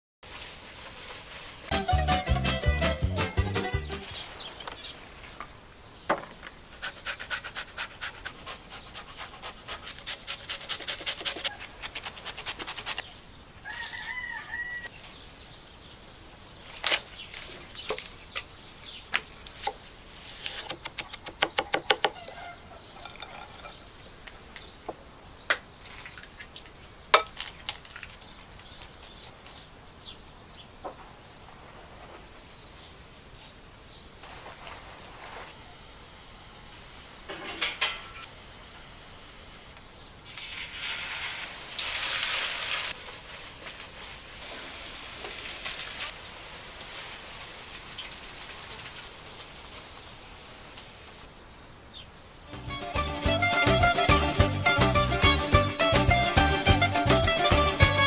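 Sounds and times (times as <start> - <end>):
rapid strokes on wooden board: 6.7 - 13.0
chicken calling: 13.6 - 14.9, 21.9 - 23.1.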